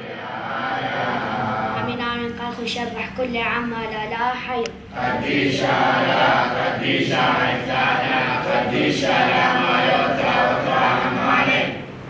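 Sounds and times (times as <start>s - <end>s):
congregation singing in unison: 0.0s - 1.8s, 4.9s - 12.0s.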